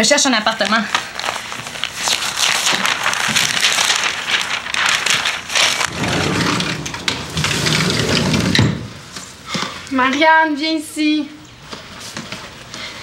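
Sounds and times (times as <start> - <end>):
newspaper rustling and crumpling: 0.5 - 6.5.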